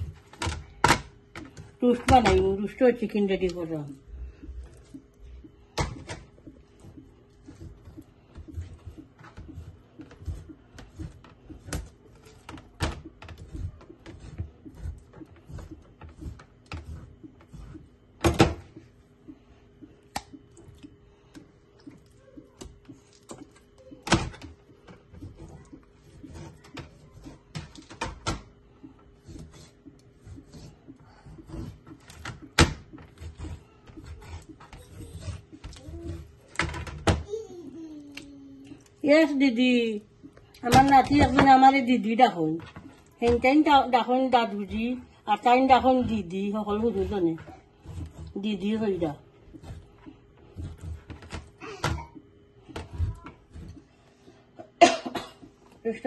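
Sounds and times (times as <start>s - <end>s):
knife chopping on plastic board: 5.7s - 18.8s, 21.9s - 28.6s, 29.2s - 37.2s.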